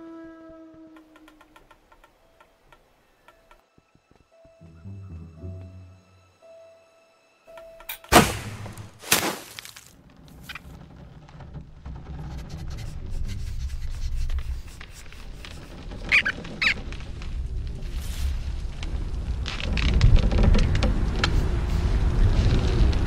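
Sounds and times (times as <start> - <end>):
cartoon thunks: 7.9 - 9.5
short squeaks: 10.3 - 17.1.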